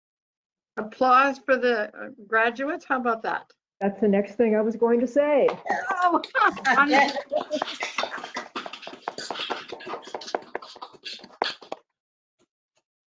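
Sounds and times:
people clapping over video call: 0:05.5 - 0:11.8.

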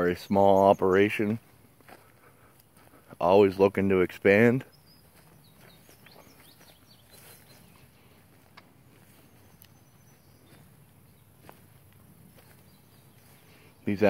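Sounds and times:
high bird chirps: 0:04.6 - 0:14.0.

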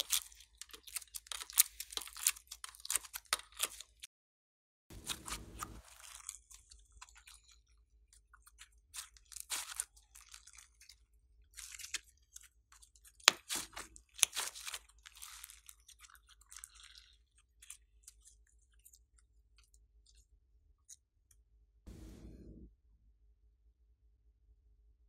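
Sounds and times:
hands squishing slime: 0:04.9 - 0:07.5, 0:08.2 - 0:19.6.

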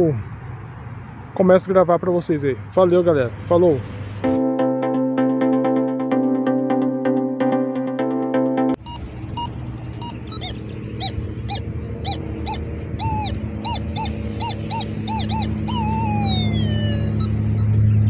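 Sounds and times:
low hum: 0:08.8 - 0:18.0
animal calling in arched notes: 0:08.9 - 0:17.8.

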